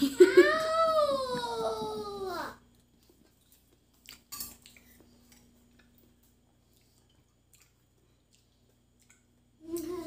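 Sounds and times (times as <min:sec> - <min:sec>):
faint steady hum: 0:00.0 - 0:10.0
spoons clinking against bowls: 0:04.3 - 0:04.7.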